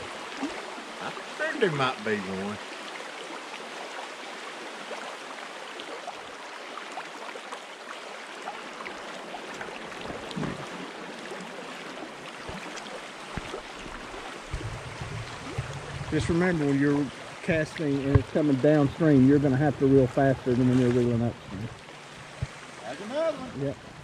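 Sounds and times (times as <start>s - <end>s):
mountain stream rushing: 0.0s - 24.0s
soft low knocks: 14.5s - 17.2s, 18.0s - 18.4s.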